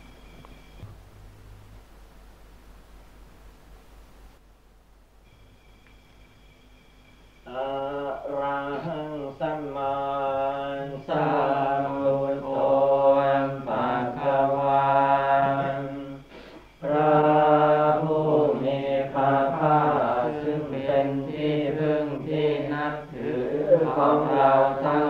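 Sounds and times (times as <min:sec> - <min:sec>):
monks chanting held tones: 0:07.4 - 0:25.0.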